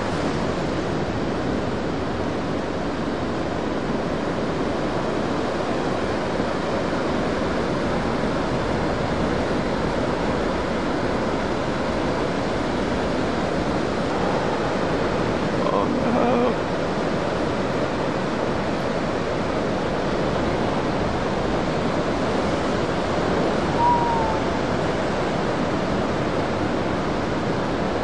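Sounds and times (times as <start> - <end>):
ocean waves breaking: 0.0 - 28.0.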